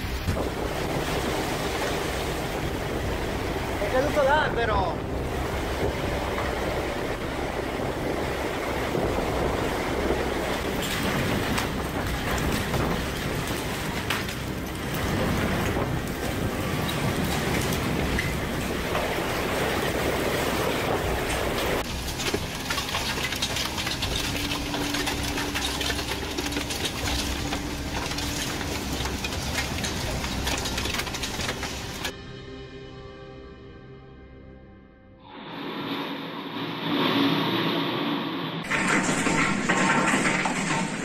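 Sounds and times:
heavy rain pouring: 0.0s - 32.1s, 35.3s - 41.0s
hail rattling on roof tiles: 10.4s - 19.1s, 21.2s - 32.1s, 38.6s - 41.0s.

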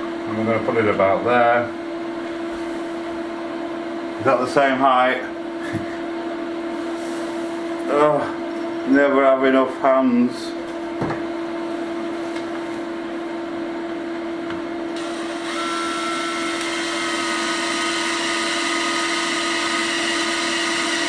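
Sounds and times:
cordless drill motor whine: 15.0s - 21.0s
drill bit grinding into wall: 15.0s - 21.0s.

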